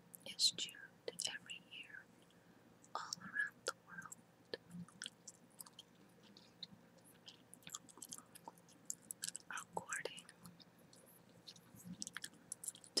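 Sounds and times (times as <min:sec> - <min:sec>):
gum chewing: 0:04.6 - 0:09.5, 0:11.4 - 0:13.0.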